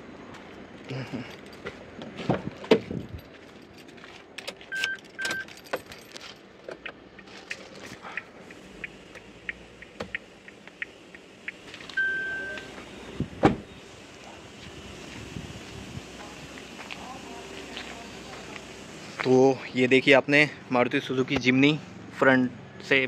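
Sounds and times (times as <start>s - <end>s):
car keys jangling: 3.0s - 6.9s
short electronic car beeps: 4.7s - 5.5s, 12.0s - 13.8s.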